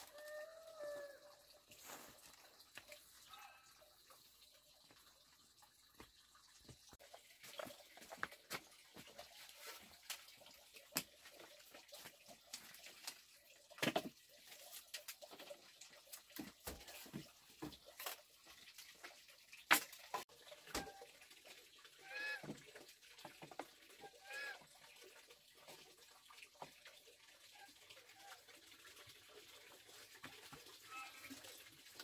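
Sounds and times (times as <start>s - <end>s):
bamboo poles knocking and clattering: 6.0s - 18.2s, 18.9s - 21.0s, 22.4s - 23.9s.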